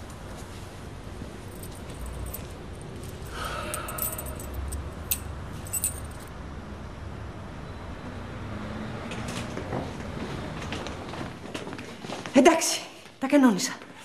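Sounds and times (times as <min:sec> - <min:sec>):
keys jangling: 0:01.5 - 0:06.3.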